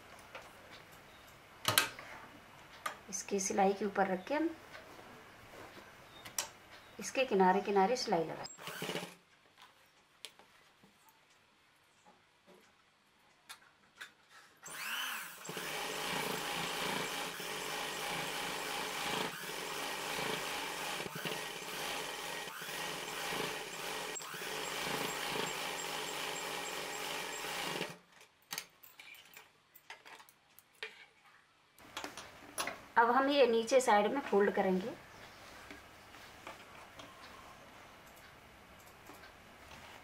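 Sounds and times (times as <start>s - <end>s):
sewing machine running: 8.5s - 9.2s, 14.7s - 28.0s.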